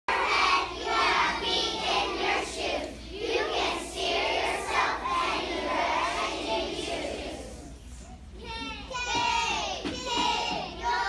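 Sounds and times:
children singing in unison: 0.1 - 7.8, 9.9 - 11.0.

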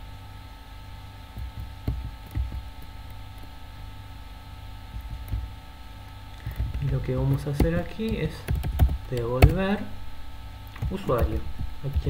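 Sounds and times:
steady electrical hum: 0.0 - 12.0
soft keyboard keystrokes: 6.4 - 9.6.

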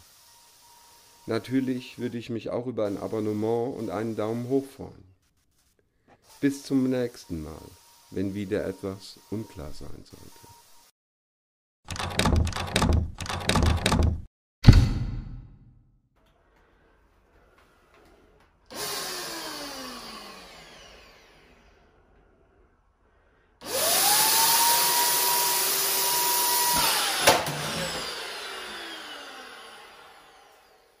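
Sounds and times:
paint sprayer turbine whine: 18.7 - 22.5, 23.6 - 31.0.

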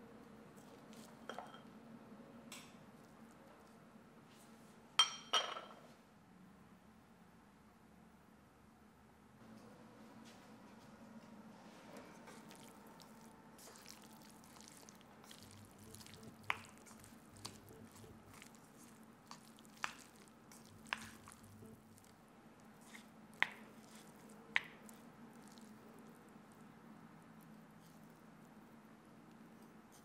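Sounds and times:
noodles squishing in bowl: 12.2 - 26.7.

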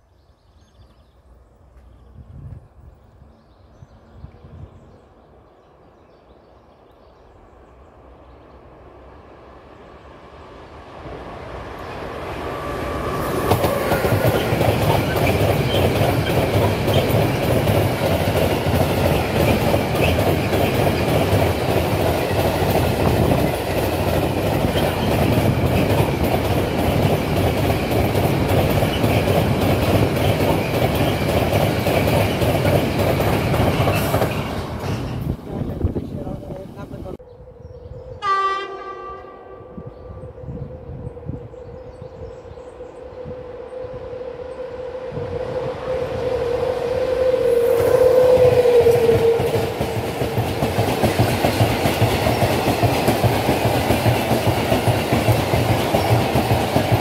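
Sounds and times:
freight train wheels clattering on rails: 13.2 - 36.7, 48.6 - 57.0.

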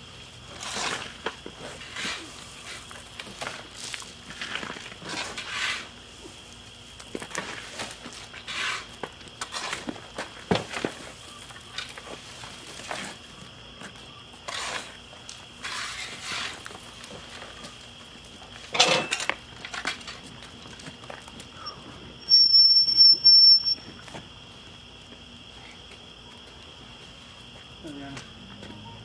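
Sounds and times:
shovels scraping wood chips: 0.4 - 6.5, 7.1 - 13.2, 14.4 - 17.8.

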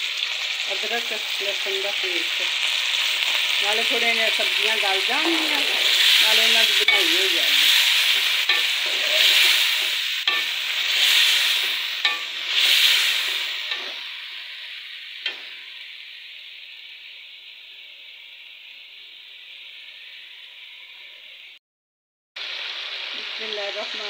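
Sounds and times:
vegetables sizzling in pot: 0.0 - 21.6, 22.4 - 24.0
metal spoon tapping and scraping pot: 8.2 - 9.1, 10.3 - 10.6, 12.0 - 12.4.

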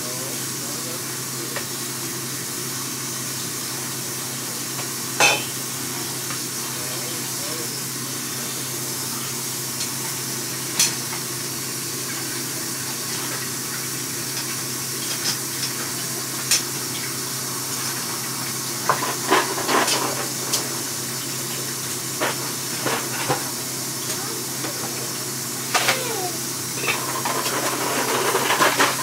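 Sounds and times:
steady hiss: 0.0 - 14.3
utensils clinking against pots: 4.8 - 5.7, 25.6 - 29.0.

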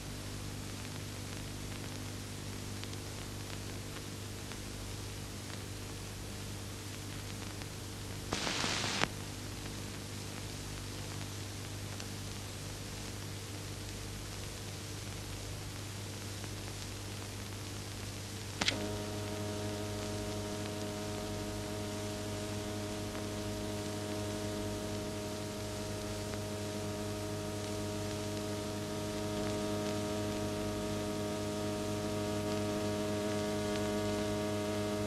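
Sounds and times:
film soundtrack hum and hiss: 0.0 - 35.0
click: 18.6 - 25.1.

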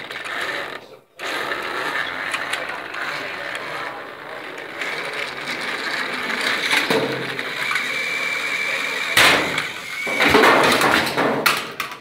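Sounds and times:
toy train motor whirring: 0.0 - 10.8
plastic clatter: 4.5 - 8.0, 9.2 - 12.0.

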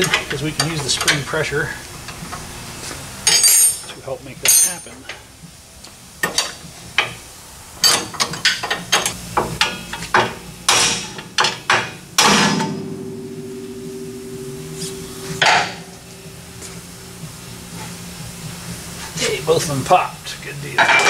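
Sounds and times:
metal ringing: 7.8 - 18.5
hammer striking metal: 9.4 - 17.9.

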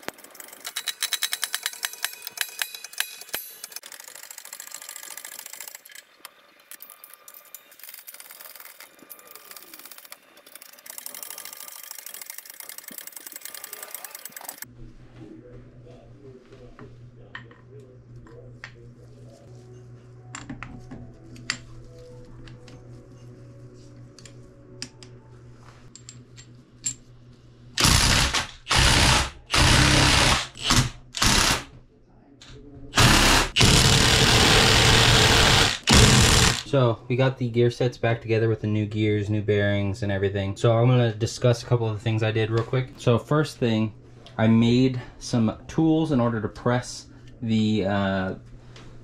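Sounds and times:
steel gears clinking: 0.0 - 14.6
impact wrench bursts: 27.8 - 31.7, 33.0 - 36.7.

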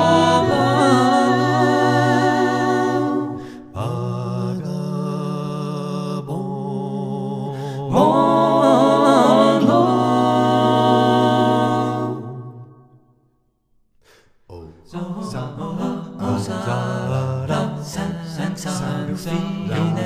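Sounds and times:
voices singing in harmony: 0.0 - 13.1, 14.5 - 20.0.

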